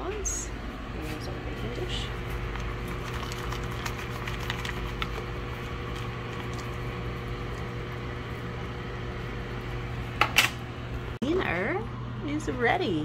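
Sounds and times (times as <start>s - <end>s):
low kitchen hum: 0.0s - 13.0s.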